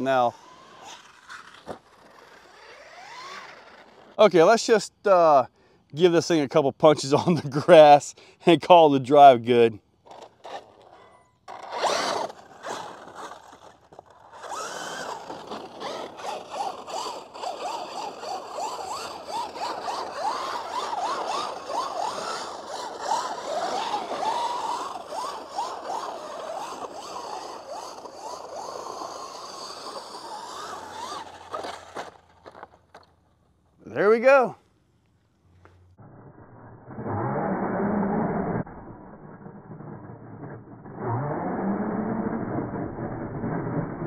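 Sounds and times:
electric motor whine: 0.0 - 4.2, 10.1 - 33.0
tyres scraping turf: 0.0 - 5.2, 9.5 - 33.2.

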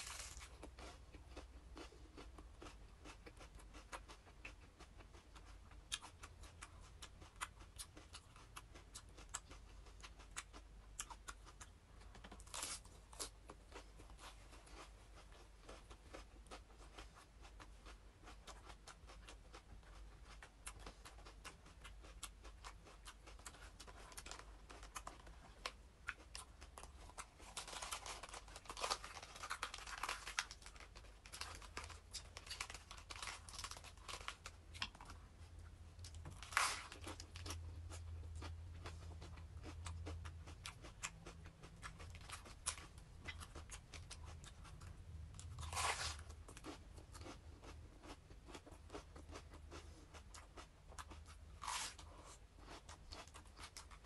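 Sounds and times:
lettuce leaves crackling and tearing: 0.0 - 0.5.

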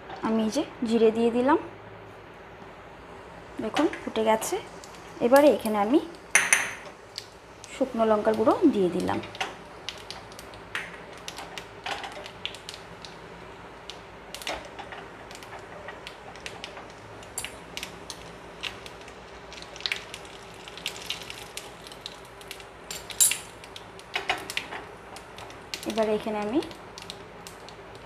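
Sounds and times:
oil sizzling with crackles: 0.0 - 28.0.

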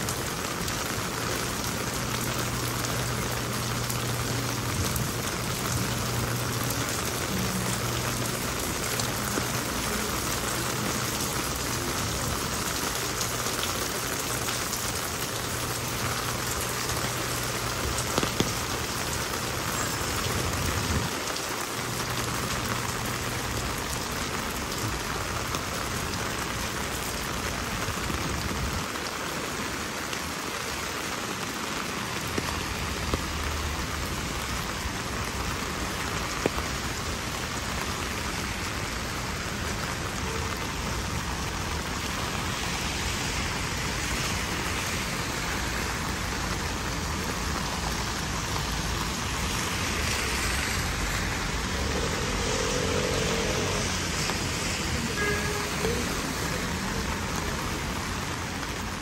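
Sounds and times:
sharp raindrop hits: 0.0 - 23.8
heavy rain falling: 0.0 - 59.0.

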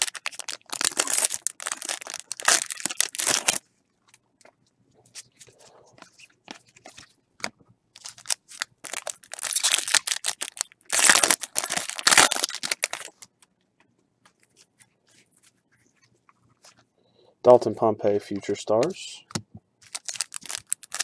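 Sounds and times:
foil wrapper crinkling and tearing: 0.0 - 3.6, 8.0 - 13.4, 19.8 - 21.0.

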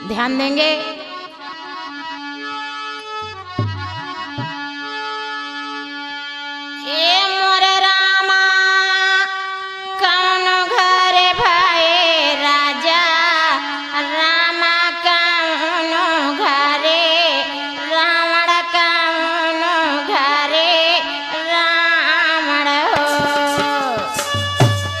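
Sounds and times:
woman singing folk song: 0.0 - 1.2, 6.8 - 24.2
held instrumental notes: 1.9 - 5.5, 23.0 - 25.0.

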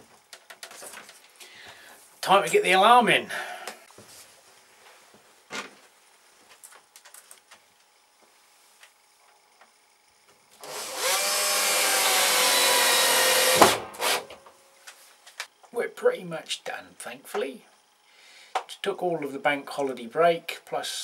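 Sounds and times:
power drill spinning: 10.6 - 14.3.

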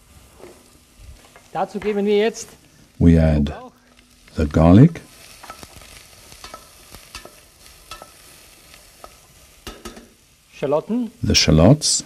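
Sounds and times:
vegetables sizzling faintly: 0.0 - 12.0
wooden spoon knocking on pan: 9.0 - 10.1.

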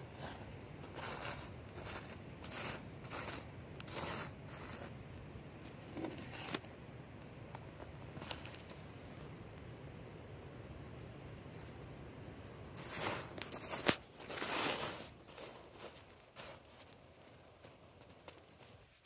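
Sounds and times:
hands scraping soil: 0.0 - 5.0, 8.1 - 9.4, 11.5 - 17.0.

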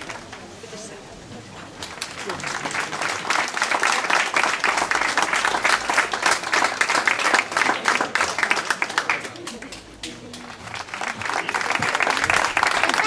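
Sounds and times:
group of people applauding: 0.0 - 0.6, 1.7 - 13.0.

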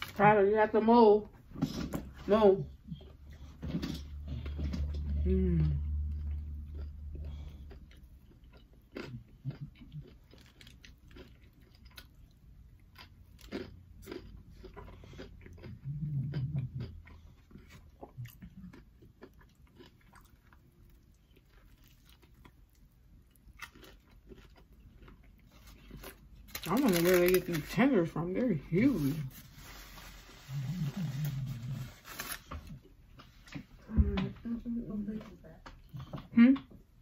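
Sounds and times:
crunchy bites and chewing: 3.6 - 27.8.

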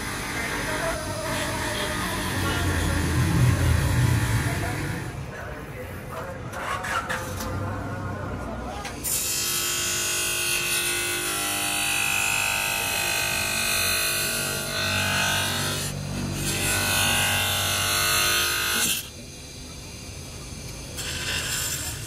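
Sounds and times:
grinder motor whine: 0.0 - 5.2.

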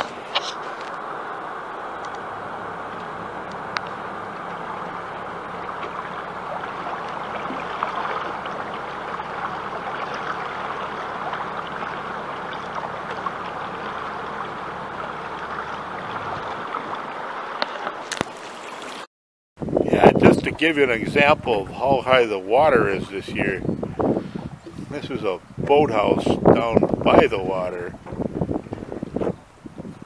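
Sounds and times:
low motor hum: 0.0 - 19.0
water splashing along boat hull: 0.0 - 19.1, 20.0 - 30.0.

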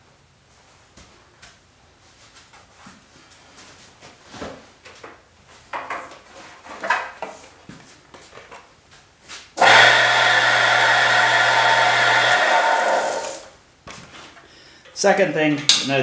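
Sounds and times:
wood lathe motor whirring: 9.6 - 13.5.

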